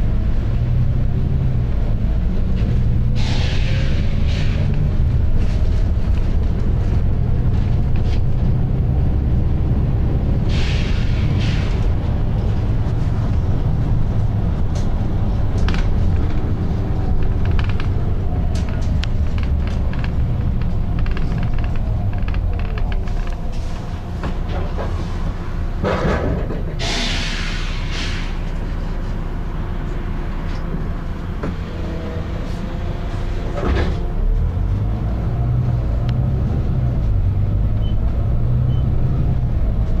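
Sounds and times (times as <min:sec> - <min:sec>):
bus engine rumble: 0:00.0 - 0:40.0
air hiss bursts: 0:26.8 - 0:28.4.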